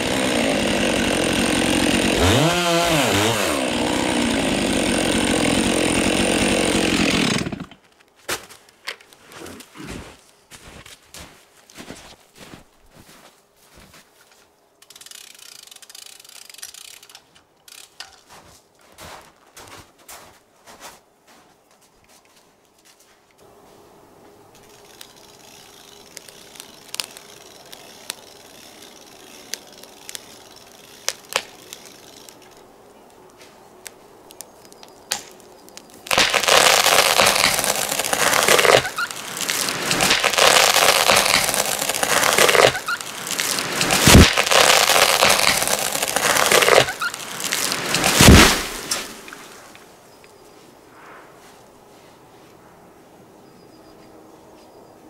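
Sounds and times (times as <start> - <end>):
tree crashing through branches: 0.0 - 7.8, 36.0 - 49.9
tree wood cracking: 0.0 - 10.0, 24.6 - 50.0
heavy thuds of falling tree: 39.4 - 49.6.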